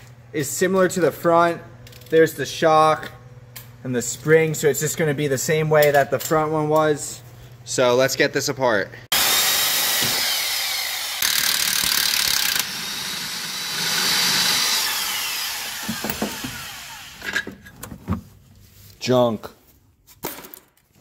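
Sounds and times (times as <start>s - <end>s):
impact wrench running: 9.1s - 17.6s.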